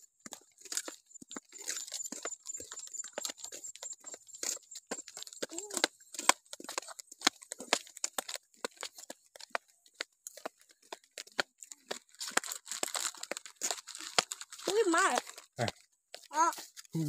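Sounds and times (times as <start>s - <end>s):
child crunching crisps: 0.3s - 6.4s, 10.6s - 17.0s
snack packet crinkling: 11.8s - 16.9s.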